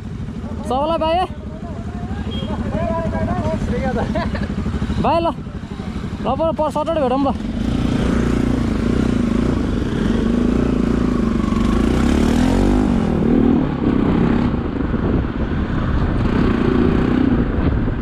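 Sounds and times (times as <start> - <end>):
motorcycle engine running: 0.0 - 18.0
wind rumble on microphone: 12.6 - 18.0.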